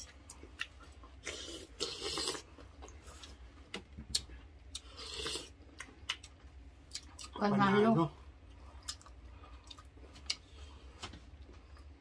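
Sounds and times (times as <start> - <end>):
chewing: 8.6 - 10.6.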